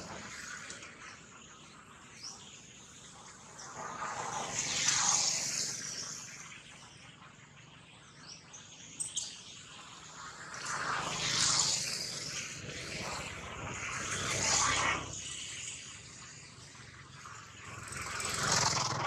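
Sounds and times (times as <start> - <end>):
bird chirps: 6.0 - 10.0.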